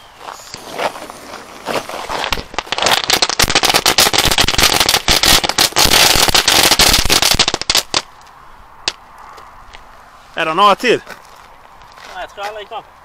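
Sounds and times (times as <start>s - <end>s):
firework crackling: 0.2s - 8.2s.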